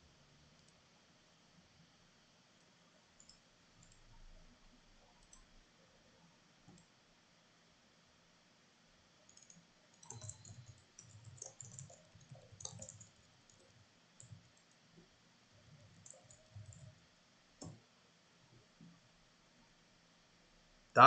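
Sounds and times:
faint keyboard typing: 0.5s - 0.9s, 2.6s - 5.7s, 6.6s - 7.0s, 9.2s - 17.9s.

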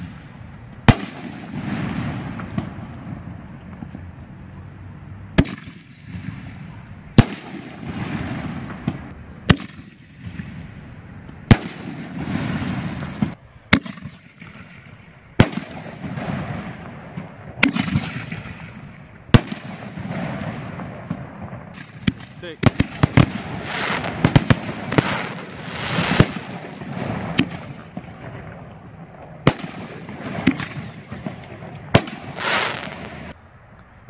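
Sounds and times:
firework shell booms: 0.9s - 3.9s, 11.5s - 33.4s
firework hiss: 11.5s - 13.4s, 19.6s - 27.8s, 32.0s - 33.4s.

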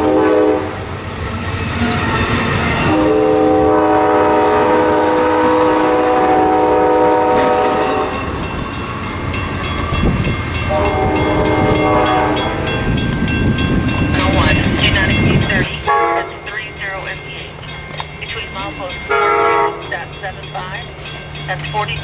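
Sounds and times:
train horn blast: 0.0s - 0.9s, 2.8s - 8.3s, 10.7s - 13.0s, 15.0s - 16.6s, 19.1s - 20.1s
passing train rumble: 0.0s - 22.0s.

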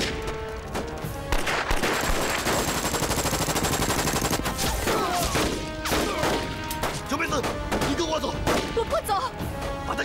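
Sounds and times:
gunshots: 1.2s - 8.8s
machine-gun burst: 1.3s - 4.5s.

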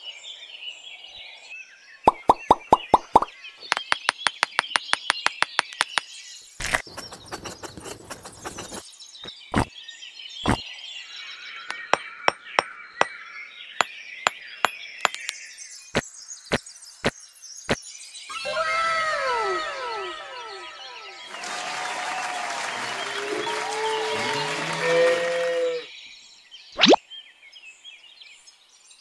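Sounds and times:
birds chirping: 0.0s - 17.2s, 18.3s - 21.7s
clay bricks clicking in mortar: 3.0s - 8.8s
scraping rustle: 6.6s - 8.8s.

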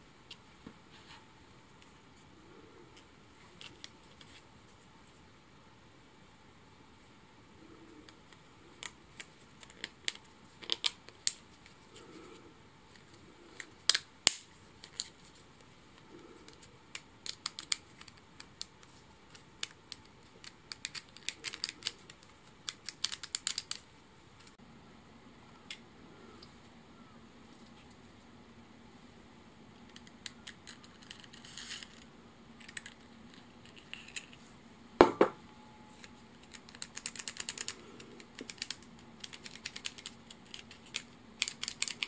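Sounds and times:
plastic parts clicking: 19.3s - 23.8s, 36.4s - 42.0s.

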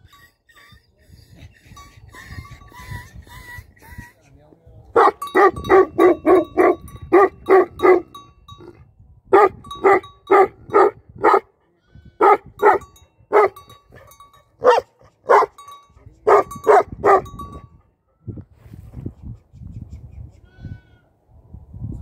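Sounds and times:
large dog barking: 5.0s - 8.7s, 9.3s - 11.5s, 12.2s - 15.6s, 16.2s - 17.4s.

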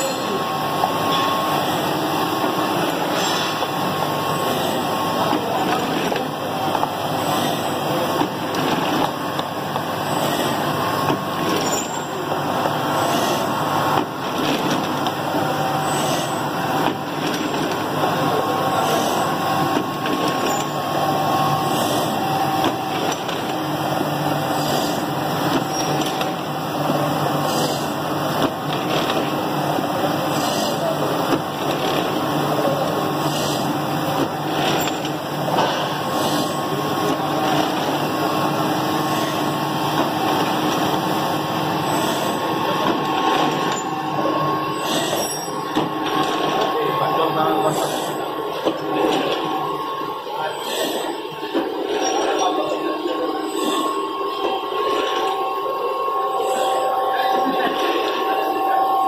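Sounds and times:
machine humming: 0.0s - 59.0s.

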